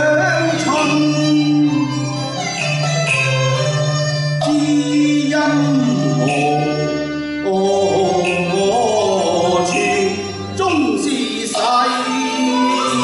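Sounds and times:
person singing opera: 0.0s - 1.9s, 4.4s - 13.0s
instrumental accompaniment: 0.0s - 13.0s.

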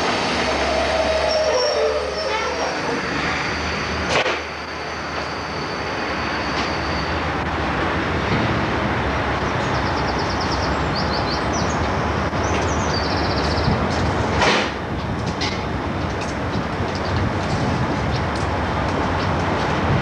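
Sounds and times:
train equipment humming and hissing: 0.0s - 9.0s.

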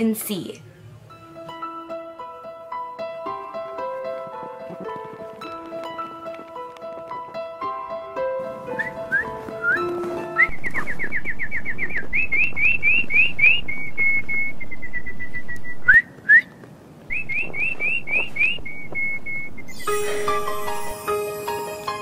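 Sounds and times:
person whistling bird-like tune: 8.7s - 16.5s, 17.1s - 20.4s.

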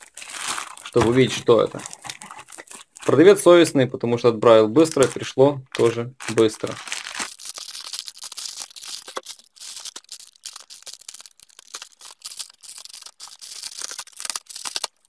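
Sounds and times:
packing tape tearing: 0.0s - 1.0s, 5.8s - 15.0s
plastic bag crinkling: 0.0s - 3.5s, 4.8s - 15.0s.

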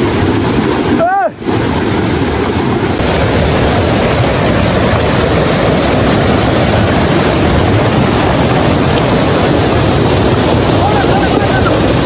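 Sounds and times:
river rushing over boulders: 0.0s - 12.0s.

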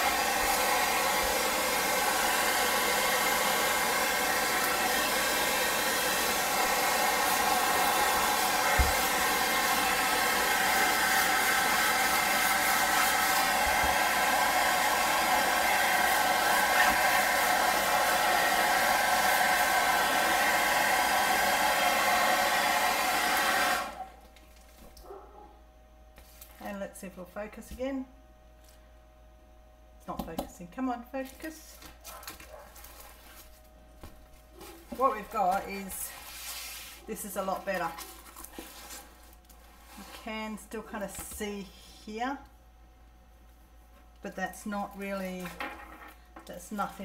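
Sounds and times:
hairdryer blowing: 0.0s - 24.2s, 34.7s - 39.1s.

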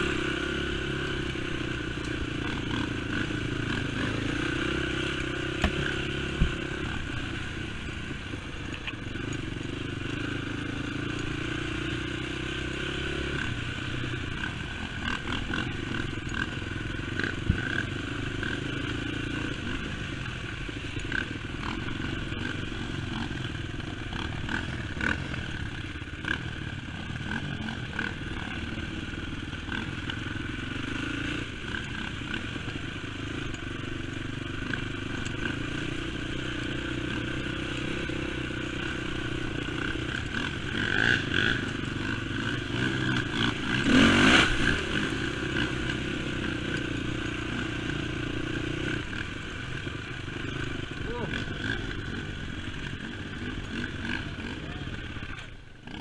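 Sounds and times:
quad bike engine revving: 0.0s - 56.0s
knocks and clatter over bumps: 5.1s - 7.0s.

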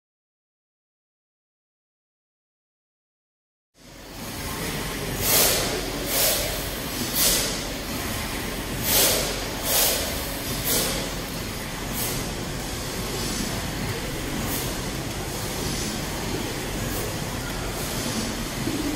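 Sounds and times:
steam engine rumbling: 3.8s - 18.9s
steam hissing puffs: 4.2s - 13.8s, 14.4s - 18.9s.

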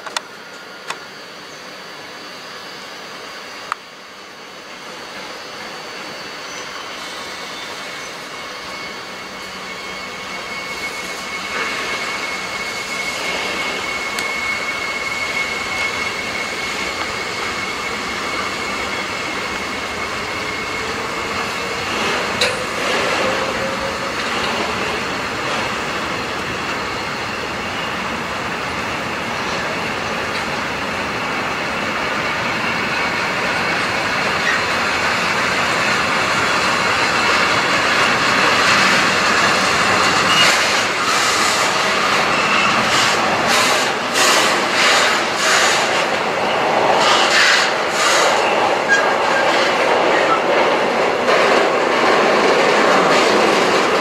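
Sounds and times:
train wheels rumbling on rail: 0.0s - 54.0s
high wheel squeal: 4.8s - 54.0s.

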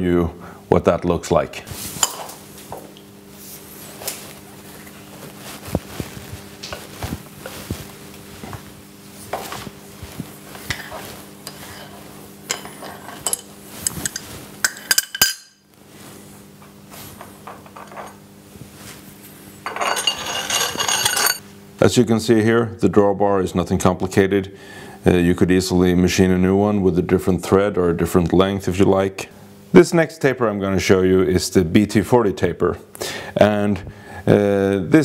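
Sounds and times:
steady low hum: 0.0s - 35.0s
wrench clinking on metal: 19.7s - 21.4s.

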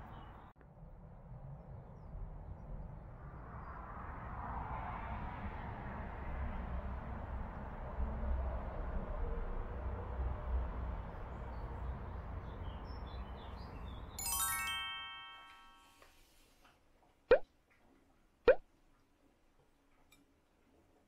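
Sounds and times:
bell-like chime notes: 14.2s - 16.0s.

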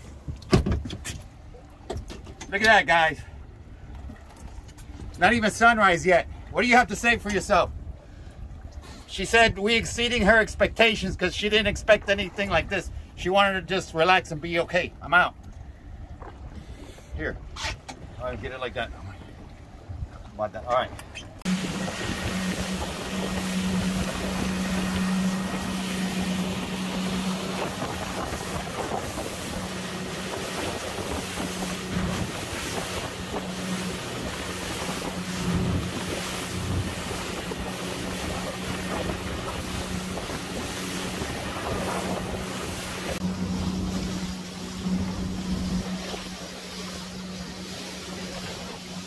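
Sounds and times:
motorboat engine drone: 0.0s - 6.5s, 20.9s - 49.0s
water rushing along hull: 0.0s - 49.0s
wind buffeting microphone: 21.2s - 48.8s.

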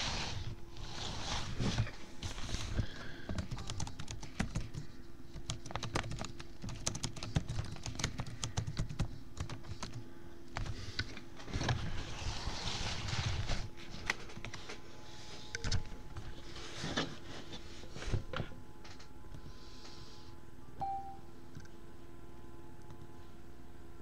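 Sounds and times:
faint steady hum: 0.0s - 24.0s
laptop keyboard typing: 3.3s - 10.8s.

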